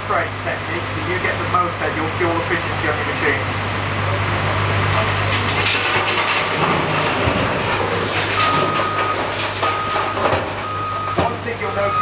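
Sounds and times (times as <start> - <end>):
wheel loader engine under load: 0.0 - 12.0
reversing alarm beeps: 8.4 - 12.0.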